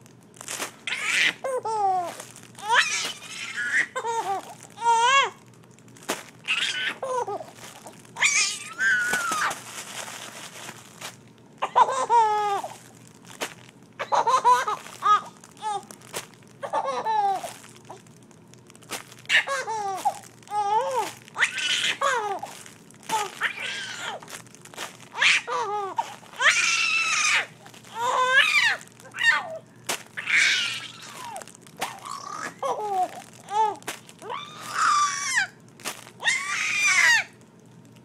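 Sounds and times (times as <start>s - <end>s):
fabric cube crinkling: 0.0s - 38.0s
infant laughing and squealing: 0.9s - 5.4s, 6.5s - 9.6s, 11.6s - 12.8s, 14.0s - 15.9s, 16.6s - 17.5s, 19.3s - 22.5s, 23.1s - 24.3s, 25.1s - 29.6s, 30.2s - 35.6s, 36.2s - 37.4s.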